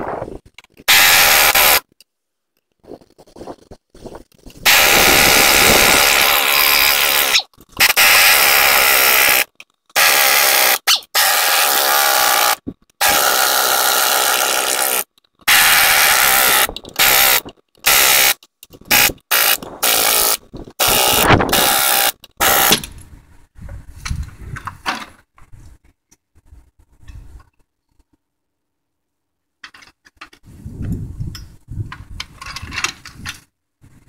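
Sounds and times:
impact wrench bursts: 0.9 - 1.8, 4.7 - 22.9.

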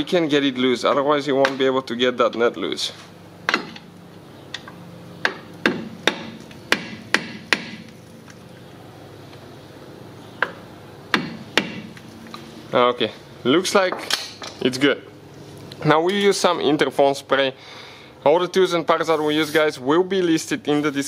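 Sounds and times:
hammer tapping steel punch: 3.5 - 3.8, 10.4 - 12.0.

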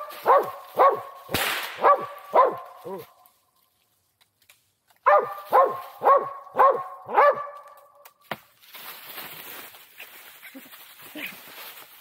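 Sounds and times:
dog barking loudly: 0.0 - 1.2, 1.8 - 3.1, 5.0 - 7.7.

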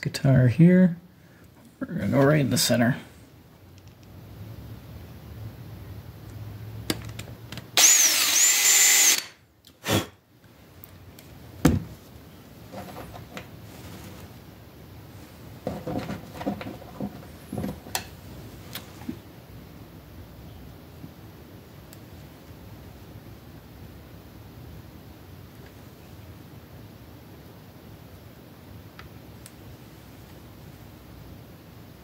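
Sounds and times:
cordless drill boring: 7.8 - 9.4.

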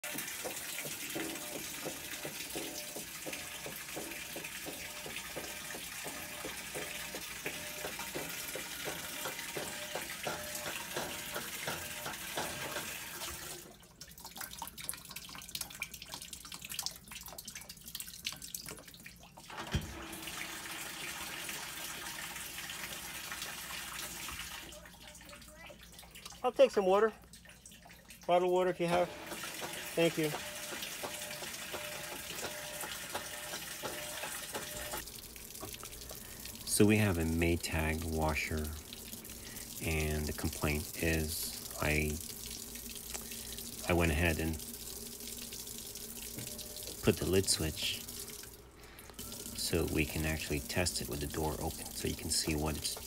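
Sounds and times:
water rushing into washer tub: 0.0 - 53.0.

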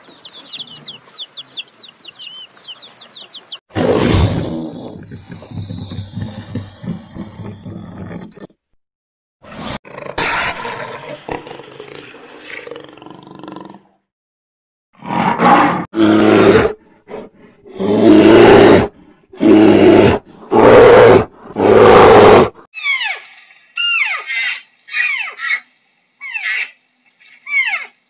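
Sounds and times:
large animal roaring: 17.6 - 22.6.

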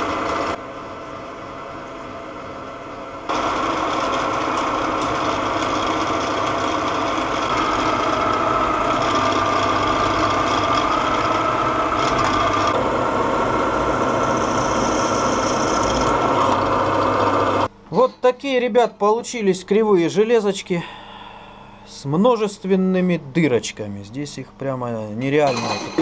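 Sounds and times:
drill press motor hum: 0.0 - 17.8
high cutting whine: 0.0 - 18.4.

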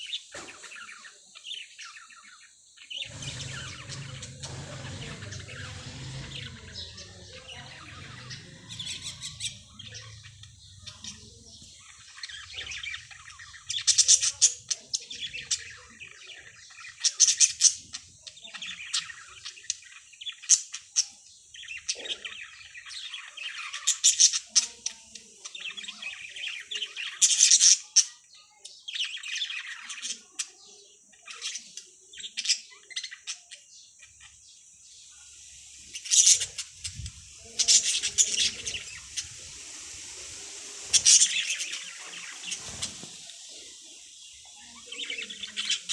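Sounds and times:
budgerigars chirping and chattering: 0.0 - 45.9
squawky bird bursts: 35.8 - 44.1.

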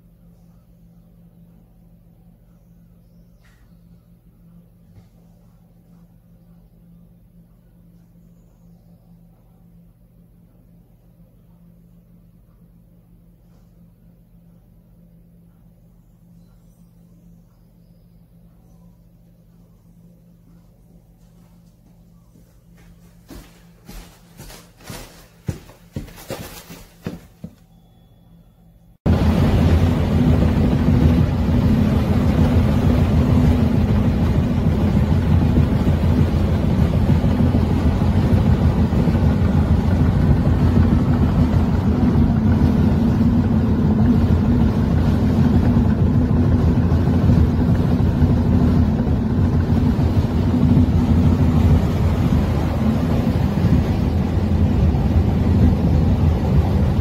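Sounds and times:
footsteps on wooden floor: 21.2 - 27.7.

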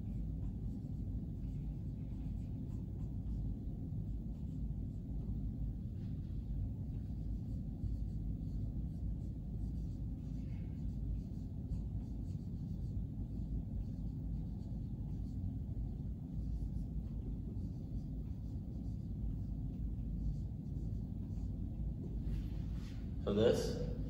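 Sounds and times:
marker scratching on whiteboard: 0.0 - 23.1.

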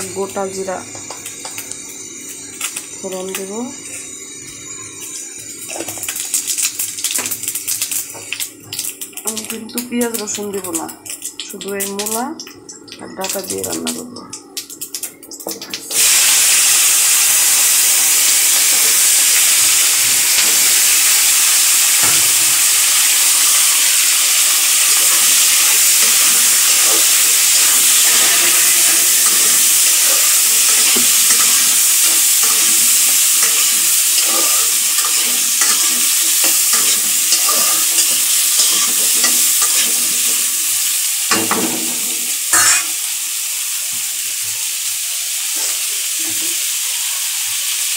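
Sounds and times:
vegetables sizzling in hot oil: 0.0 - 47.9
metal spatula scraping a pan: 24.8 - 40.6, 41.4 - 43.0.

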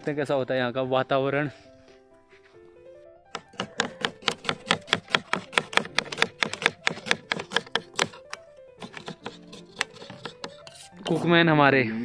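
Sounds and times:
faint background music: 0.0 - 12.0
knife chopping on plastic board: 3.3 - 11.1.

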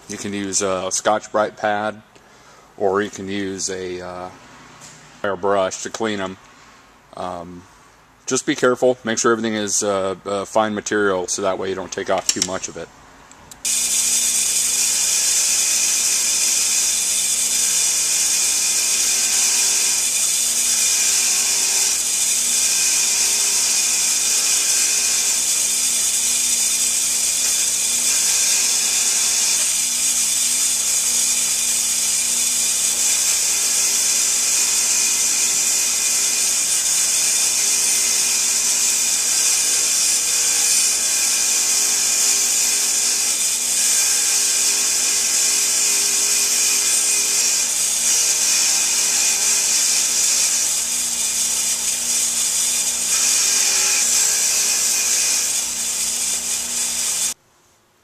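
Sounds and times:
bench grinder motor hum: 13.6 - 57.4
wire wheel brushing metal: 13.6 - 57.4.

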